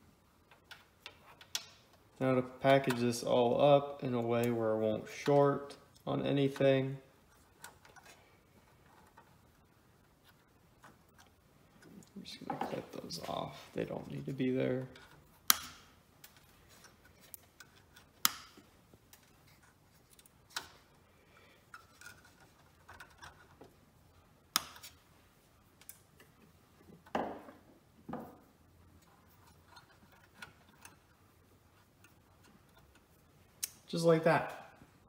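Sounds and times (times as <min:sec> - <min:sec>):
wires rustling: 0:00.0 - 0:35.0
wire cutters snapping: 0:15.4 - 0:16.4, 0:18.1 - 0:18.6.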